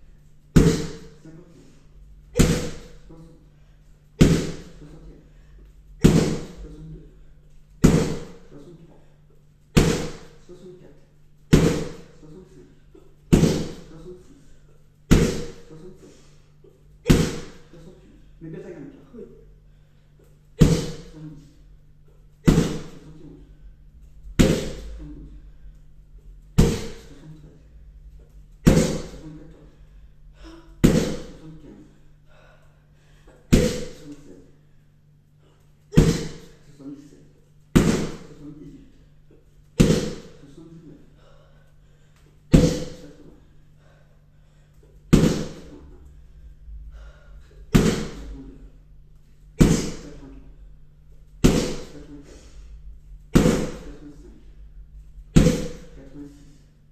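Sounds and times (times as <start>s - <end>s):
kicks smacking a kick shield: 26.6s - 27.0s, 39.8s - 40.2s, 55.4s - 55.8s.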